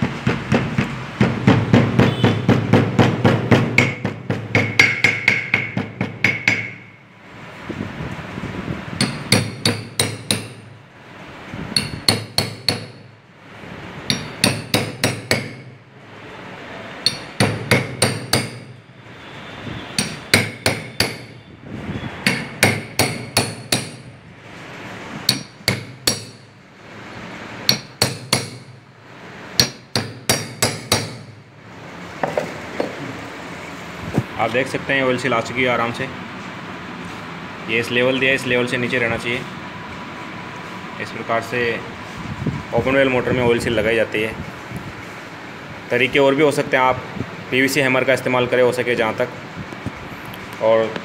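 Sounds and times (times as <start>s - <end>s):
hammer striking metal pipe: 0.2s - 6.9s, 9.0s - 10.7s, 11.7s - 13.1s, 14.1s - 15.8s, 17.0s - 18.8s, 20.0s - 21.4s, 22.2s - 24.1s, 25.2s - 26.5s, 27.6s - 28.8s, 29.6s - 31.4s.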